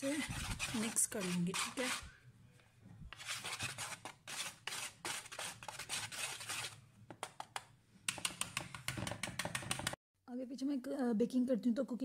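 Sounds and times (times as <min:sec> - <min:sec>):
whisk stirring in plastic bowl: 0:00.0 - 0:02.2, 0:03.1 - 0:06.8, 0:08.1 - 0:10.0.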